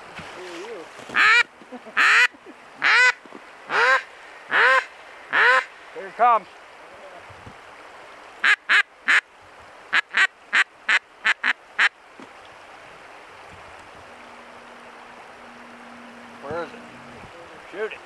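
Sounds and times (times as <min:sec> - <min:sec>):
duck quacking: 0:01.2 - 0:05.7, 0:08.4 - 0:09.2, 0:09.9 - 0:11.9.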